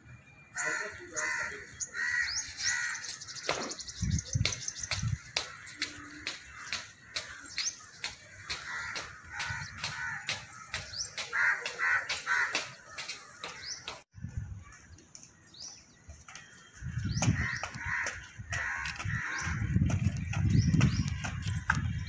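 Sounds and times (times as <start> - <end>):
small birds chirping: 0.5 - 22.0
crows cawing: 0.6 - 3.8, 5.2 - 14.0, 17.3 - 19.7.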